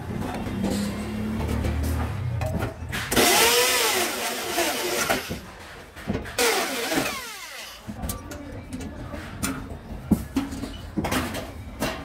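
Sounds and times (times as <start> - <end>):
electric drill whining: 6.4 - 7.8.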